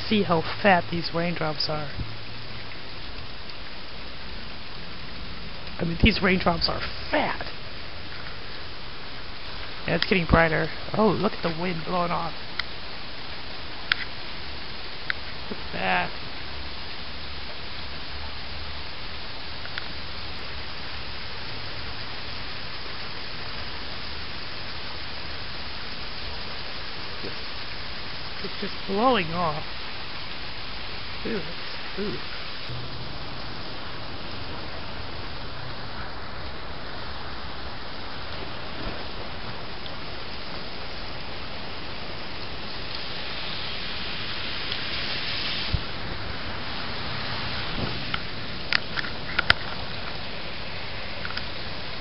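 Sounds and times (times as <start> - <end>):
heavy rain hiss: 0.0 - 52.0
low rumble: 32.5 - 40.2.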